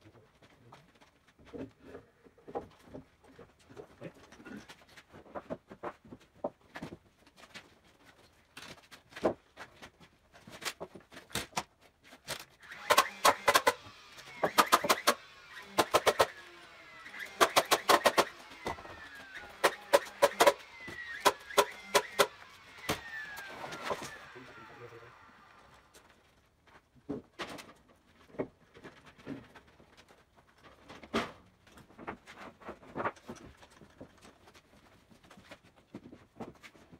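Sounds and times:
nail gun shots: 0:12.7 - 0:13.8, 0:14.4 - 0:16.4, 0:17.1 - 0:18.8, 0:19.6 - 0:23.2.

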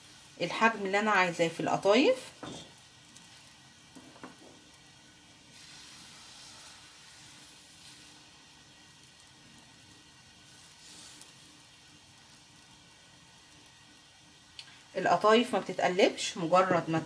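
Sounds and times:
batter sizzling in pan: 0:00.0 - 0:17.0.

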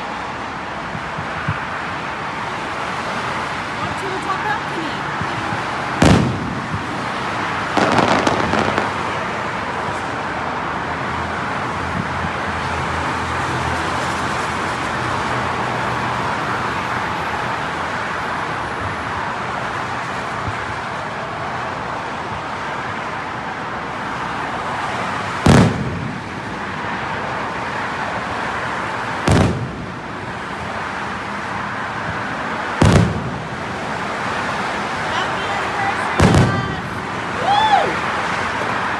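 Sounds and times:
outdoor background noise: 0:00.0 - 0:38.9
fireworks pops: 0:05.2 - 0:07.0, 0:07.7 - 0:09.2, 0:25.4 - 0:26.3, 0:29.3 - 0:29.9, 0:32.8 - 0:33.4, 0:36.2 - 0:36.7
fireworks shells bursting: 0:07.8 - 0:09.1.

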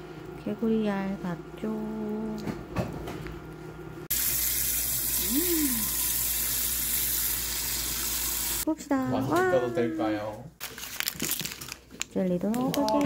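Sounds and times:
water running from tap into sink: 0:04.1 - 0:08.7.

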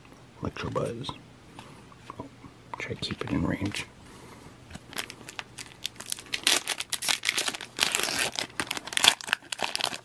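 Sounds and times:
foil wrapper tearing and crinkling: 0:04.9 - 0:10.0.

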